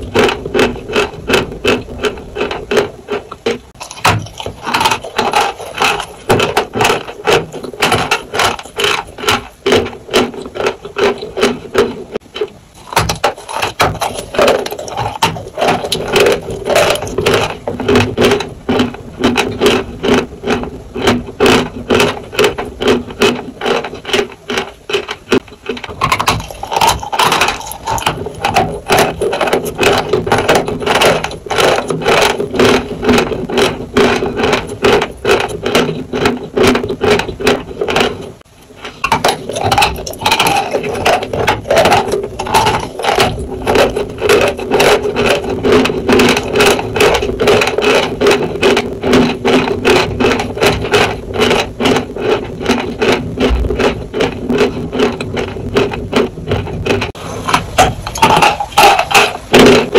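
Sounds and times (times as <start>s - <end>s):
chewing dry chalk crunches: 0.0s - 59.9s.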